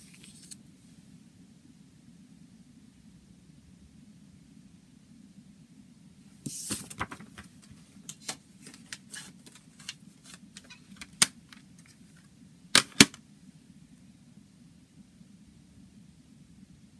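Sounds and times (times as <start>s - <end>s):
paper booklet rustling: 0.0s - 0.6s, 6.5s - 12.2s
plastic case snapping shut: 12.8s - 13.2s.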